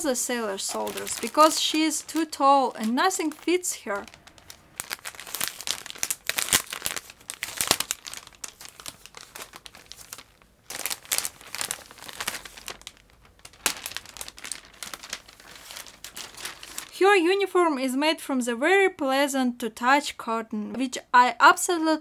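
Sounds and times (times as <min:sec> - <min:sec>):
plastic bag crinkling: 0:00.0 - 0:17.2.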